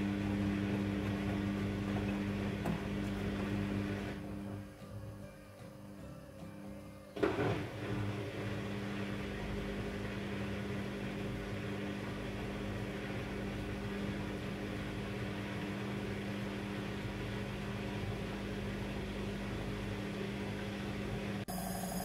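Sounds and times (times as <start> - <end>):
washing machine humming: 0.0 - 5.3, 7.2 - 22.0.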